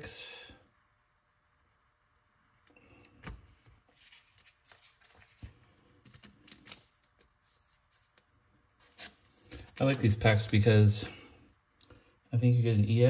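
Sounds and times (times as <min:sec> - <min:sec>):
trading cards being flipped: 0:03.2 - 0:10.6.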